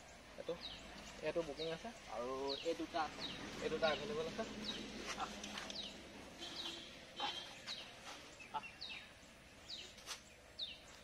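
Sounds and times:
bird chirping: 0.0 - 11.0
faint scuffs and clicks: 7.5 - 8.4, 9.8 - 11.0.

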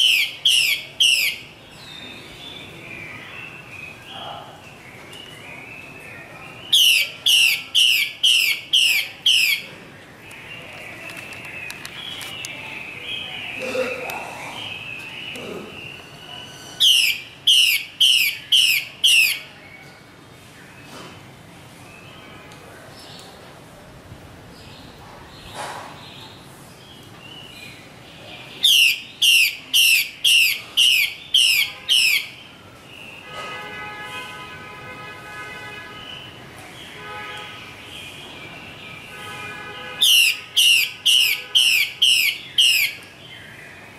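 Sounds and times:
bird whistling: 0.0 - 2.2, 16.3 - 19.4, 28.6 - 32.4, 40.0 - 43.0
sharp downward-sweeping bird calls: 0.0 - 4.1, 6.7 - 9.7, 16.7 - 19.5, 28.6 - 32.5, 40.0 - 43.0.

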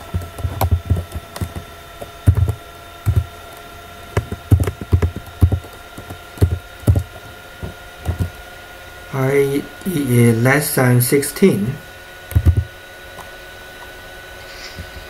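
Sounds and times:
keyboard keystrokes clicking: 0.0 - 1.6, 2.3 - 3.3, 4.2 - 7.1, 8.0 - 8.3, 12.3 - 12.7
faint electrical whine: 0.0 - 15.0.

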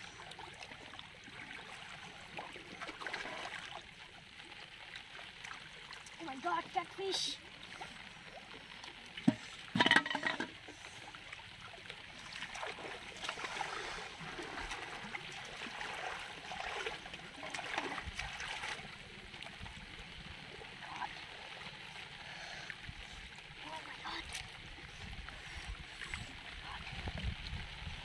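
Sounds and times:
shallow water splashing: 0.0 - 28.0
knocks against metal pot: 9.3 - 10.5.

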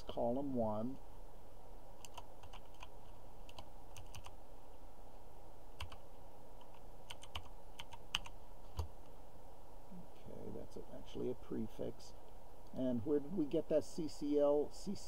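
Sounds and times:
keyboard keys clicking: 2.0 - 2.9, 3.5 - 4.3, 5.8 - 6.0, 6.6 - 8.9.

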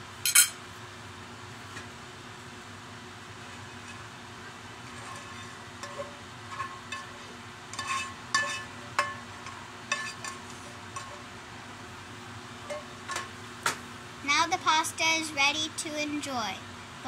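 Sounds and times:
utensil scraping frying pan: 3.4 - 4.2, 4.8 - 11.3.

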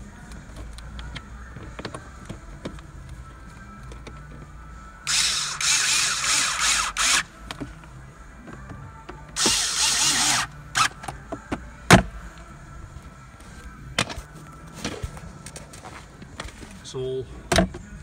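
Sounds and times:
power screwdriver running: 5.1 - 7.3, 9.4 - 11.0.

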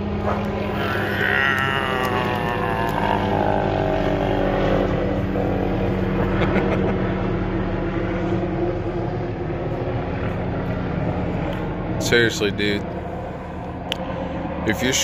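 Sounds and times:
aircraft engine drone passing overhead: 0.0 - 15.0.

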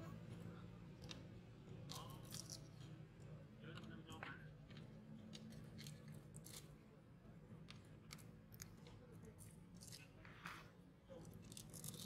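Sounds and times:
monkey gnawing and chewing: 4.6 - 6.8, 11.2 - 12.0.

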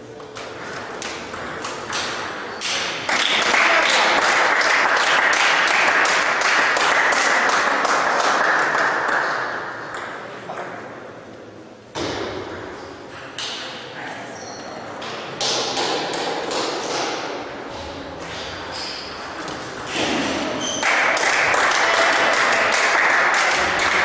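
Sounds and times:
spectators clapping and cheering: 3.0 - 9.8, 20.8 - 24.0.

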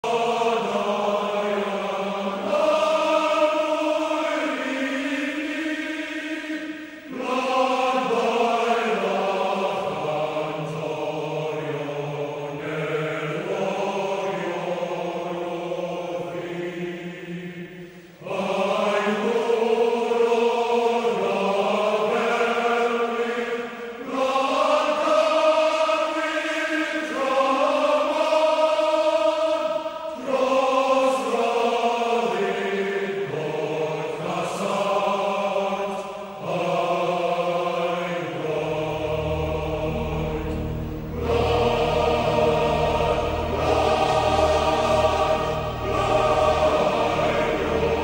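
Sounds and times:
choir-like chanted singing: 0.0 - 48.0.

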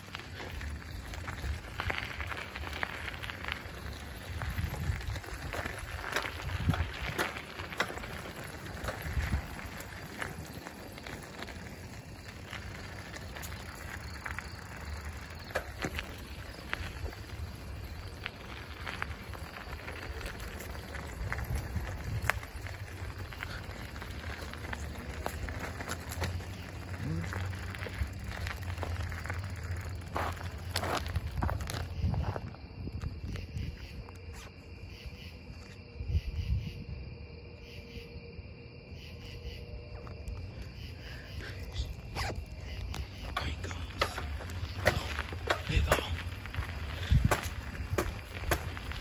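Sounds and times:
crickets chirping: 0.0 - 49.0
wheels clicking over rail: 42.9 - 49.0.

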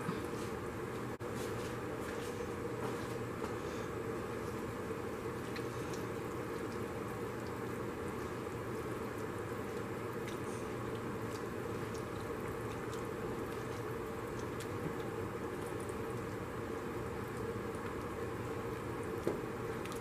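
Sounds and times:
pot boiling and bubbling: 0.0 - 20.0.

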